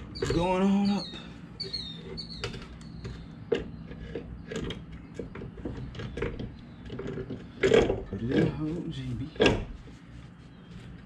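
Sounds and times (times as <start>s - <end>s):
metal knocks clicks and creaks: 0.0s - 0.6s, 2.1s - 8.7s, 9.3s - 9.8s.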